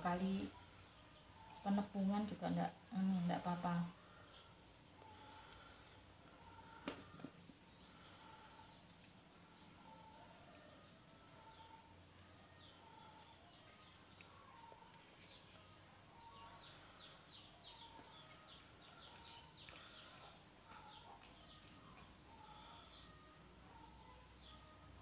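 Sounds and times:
faint birds chirping: 0.0 - 25.0.

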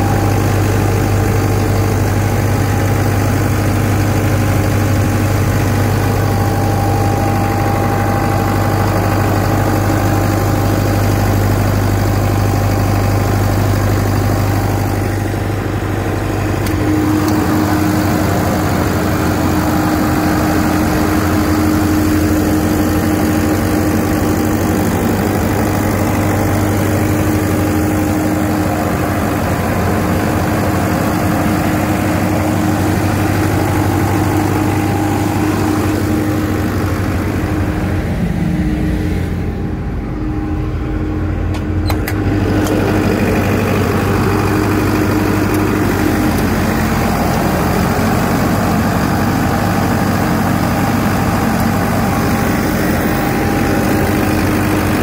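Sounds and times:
diesel generator droning: 0.0 - 55.0
clicks: 16.6 - 17.8, 41.5 - 43.0.

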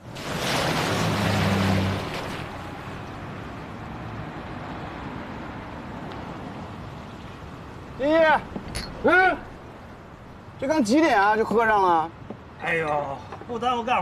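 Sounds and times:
tyres splashing through water: 0.0 - 10.4
street noise: 0.0 - 14.0.

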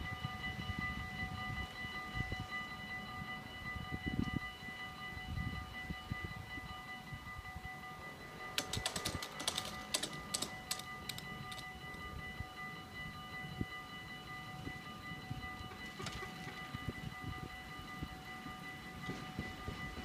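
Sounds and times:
level crossing bells ringing: 0.0 - 20.0
sharp rattling clicks: 8.6 - 11.7.

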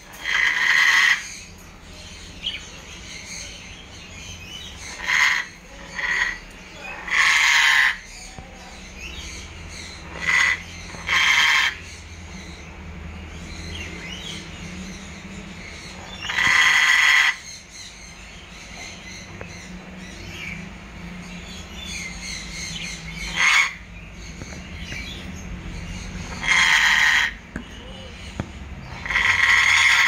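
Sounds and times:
parrot squawking: 0.1 - 1.5, 4.7 - 11.9, 15.9 - 17.4, 22.0 - 23.9, 26.0 - 30.0.

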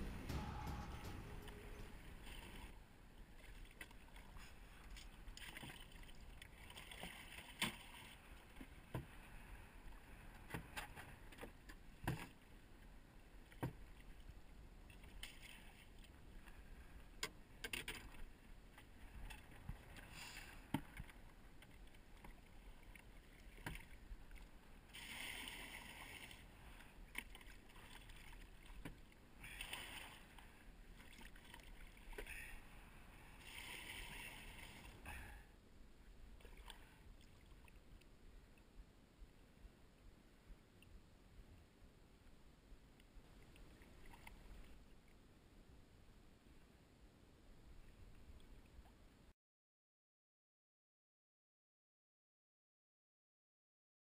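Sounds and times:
knocks and clicks of gear in boat: 0.0 - 2.7, 17.2 - 18.2
water lapping: 0.0 - 17.2, 17.9 - 35.4
faint wind: 0.0 - 49.3.

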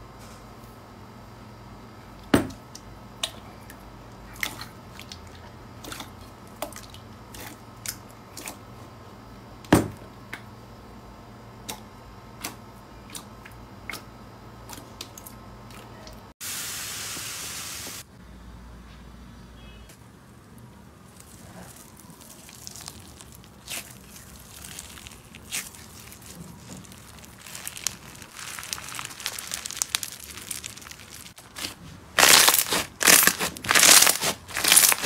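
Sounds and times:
wet slime squishes: 3.2 - 8.6, 21.0 - 35.0
plastic beads poured into glass bowl: 26.8 - 31.4, 32.2 - 35.0.

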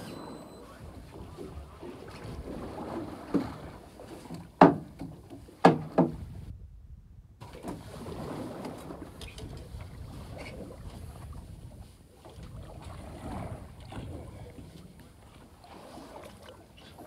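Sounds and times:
sea noise: 0.0 - 6.5, 7.4 - 17.0
wind: 0.0 - 17.0
sharp knocks on boat: 3.2 - 6.4.

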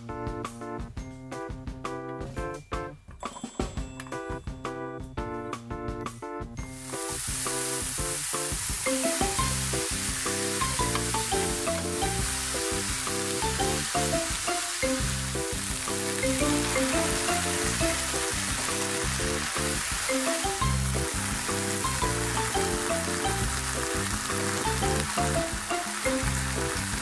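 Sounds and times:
background music: 0.0 - 27.0
mushrooms sizzling in hot oil: 6.7 - 27.0
chopsticks stirring: 8.7 - 15.4, 16.1 - 27.0.

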